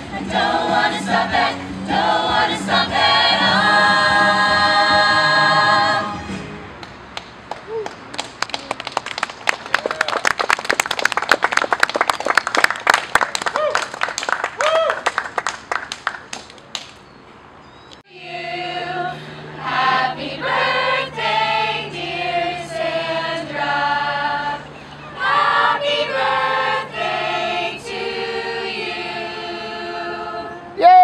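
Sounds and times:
choir singing in harmony: 0:00.0 - 0:06.6, 0:18.1 - 0:30.8
applause: 0:07.2 - 0:17.0.

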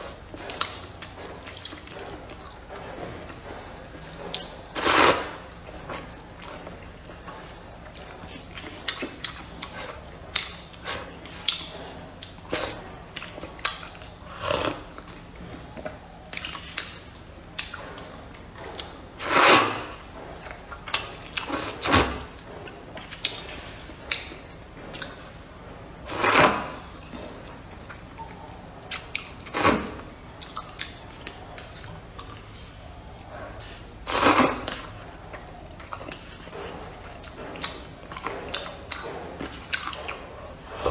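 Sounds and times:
chewing: 0:00.0 - 0:40.9
person slurping noodles: 0:04.4 - 0:05.5, 0:19.2 - 0:20.0, 0:26.1 - 0:26.8, 0:33.5 - 0:34.9.

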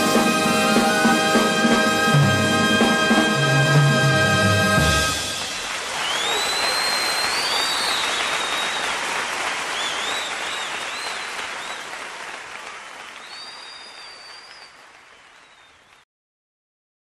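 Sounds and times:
audience applauding: 0:04.4 - 0:16.0
whistles from audience: 0:05.2 - 0:12.0, 0:13.1 - 0:16.0.

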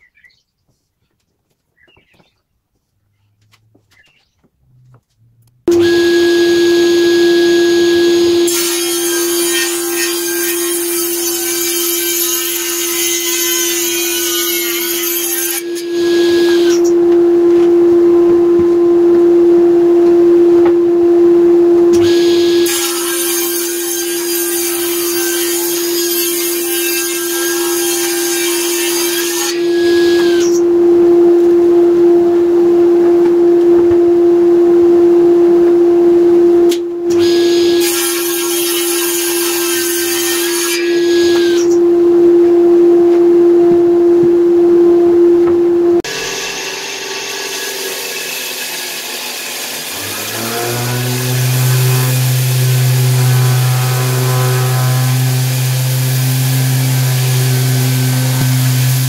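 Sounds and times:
table saw motor hum: 0:05.7 - 0:20.2, 0:21.8 - 0:34.2, 0:45.9 - 0:59.0.

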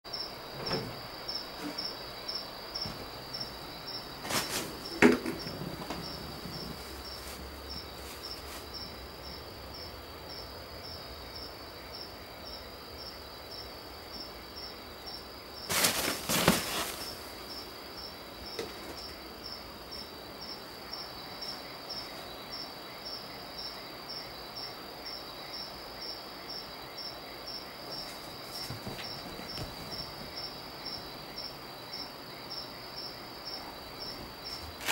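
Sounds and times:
cricket chirping: 0:00.0 - 0:34.9
thumps and rustling: 0:00.5 - 0:01.9, 0:02.8 - 0:03.2, 0:04.2 - 0:08.8, 0:15.7 - 0:17.2, 0:28.5 - 0:30.4.

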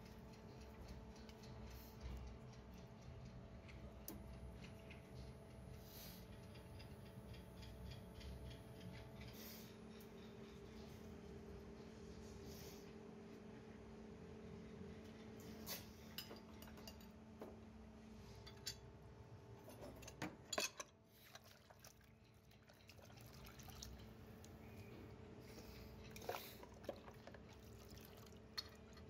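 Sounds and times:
low steady hum: 0:00.0 - 0:29.0
liquid splashing and dripping: 0:21.2 - 0:24.6, 0:26.1 - 0:29.0.

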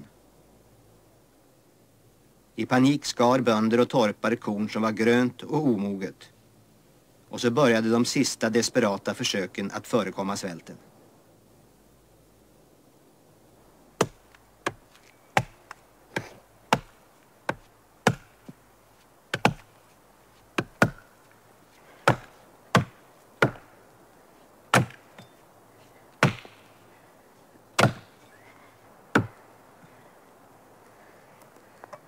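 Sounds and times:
axe chopping wood: 0:14.0 - 0:18.6, 0:19.3 - 0:19.7, 0:20.6 - 0:21.1, 0:22.0 - 0:23.7, 0:24.7 - 0:25.3, 0:26.2 - 0:26.6, 0:27.8 - 0:28.2, 0:29.1 - 0:29.4.

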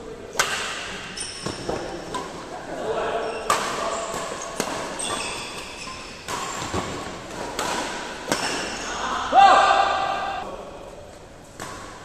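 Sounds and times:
badminton rackets hitting shuttlecock: 0:00.3 - 0:02.4, 0:03.5 - 0:09.1.

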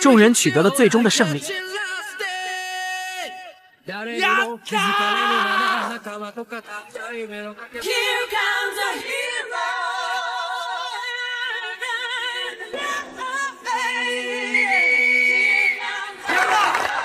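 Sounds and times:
choir singing unaccompanied: 0:03.9 - 0:17.0.

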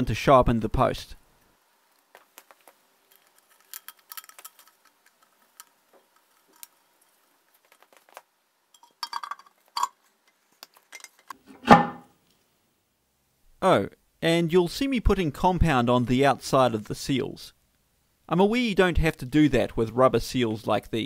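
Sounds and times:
metal clinks: 0:08.7 - 0:10.0
heavy metal clunk: 0:11.5 - 0:12.1.

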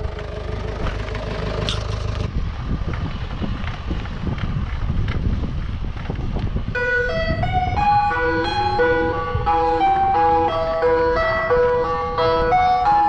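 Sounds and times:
van engine running: 0:00.0 - 0:13.0
wind rumble on microphone: 0:00.0 - 0:13.0
ice cream van chime tune: 0:06.8 - 0:13.0.

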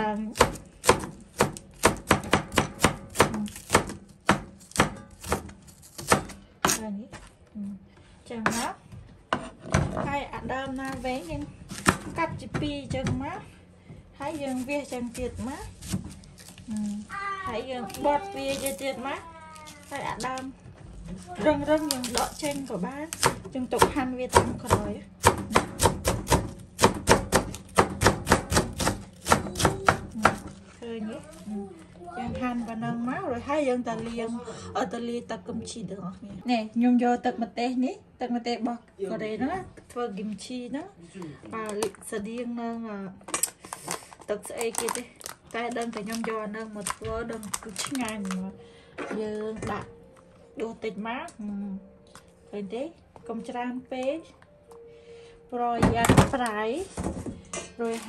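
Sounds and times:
knife chopping on cutting board: 0:00.4 - 0:06.8, 0:23.1 - 0:30.6.

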